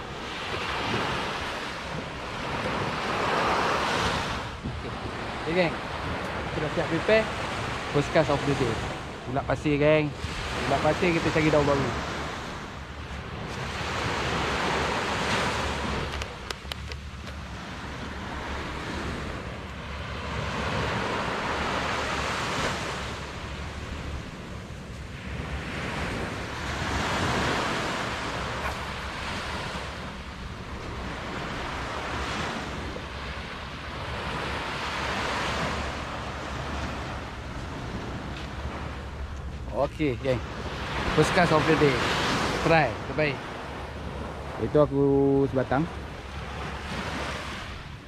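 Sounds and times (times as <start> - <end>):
small waves breaking on sand: 0.0 - 48.0.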